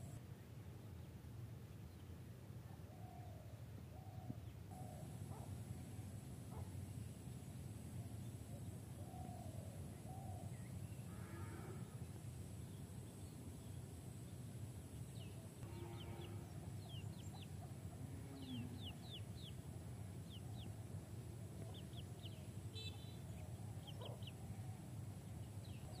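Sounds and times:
chicks peeping: 0:23.8 - 0:24.3.

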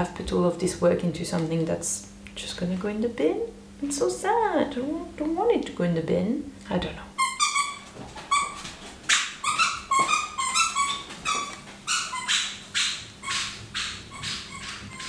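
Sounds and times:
squeaky toy squeaks: 0:07.2 - 0:15.0.

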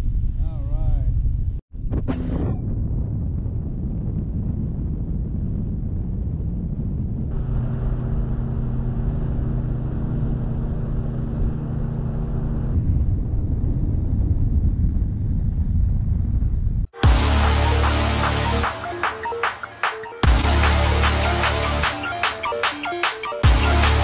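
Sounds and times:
wind rumble on microphone: 0:00.0 - 0:17.0.

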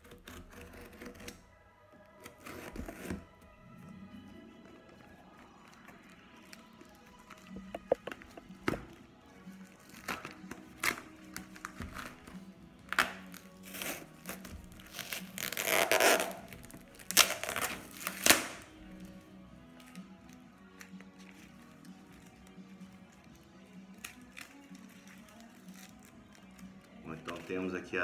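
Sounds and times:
knife cutting plastic: 0:00.0 - 0:01.4, 0:02.0 - 0:03.4, 0:04.6 - 0:09.0, 0:09.7 - 0:19.1, 0:19.8 - 0:27.7
faint background music: 0:00.0 - 0:28.0
plastic and paper crinkling: 0:19.8 - 0:27.9.

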